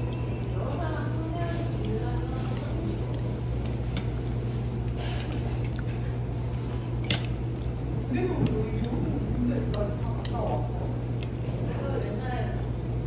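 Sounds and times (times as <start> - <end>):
steady low hum: 0.0 - 13.0
person chewing noodles: 3.0 - 8.0.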